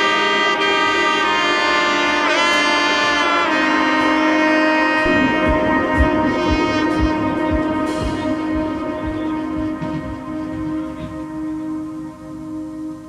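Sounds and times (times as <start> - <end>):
melody of long held notes: 0.0 - 13.0
low thumping beat: 5.0 - 12.2.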